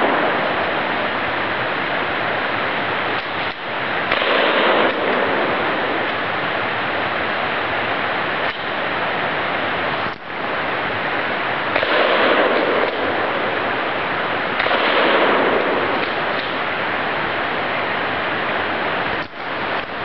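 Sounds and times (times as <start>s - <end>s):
steady rushing hiss: 0.0s - 20.0s
shotgun shots: 3.2s - 6.1s, 11.7s - 16.7s.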